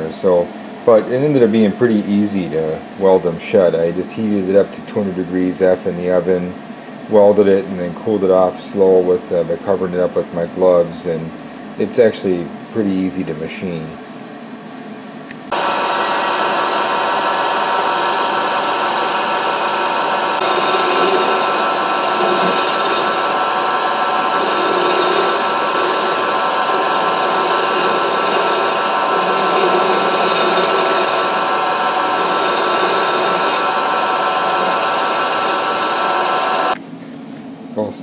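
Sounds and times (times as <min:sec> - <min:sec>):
milling machine spindle whining: 0:15.5 - 0:36.8.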